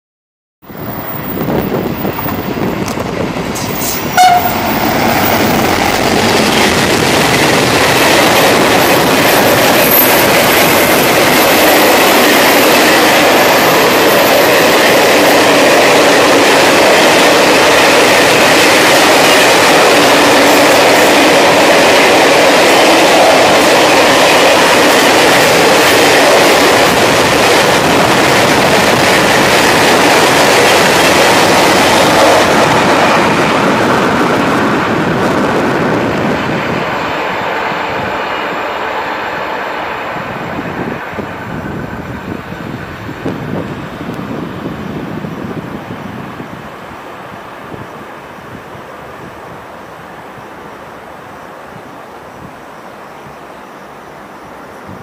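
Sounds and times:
freight wagons rumbling past: 0:00.8 - 0:11.8
train horn toot: 0:03.6 - 0:05.0.

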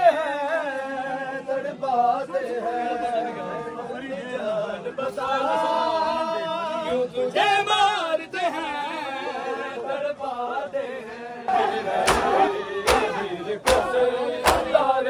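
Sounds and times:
group of voices chanting: 0:08.5 - 0:15.0.

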